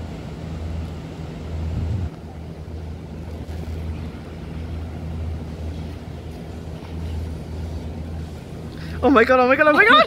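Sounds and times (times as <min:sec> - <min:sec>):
even hum: 0:00.0 - 0:10.0
low steady rumble: 0:00.0 - 0:10.0.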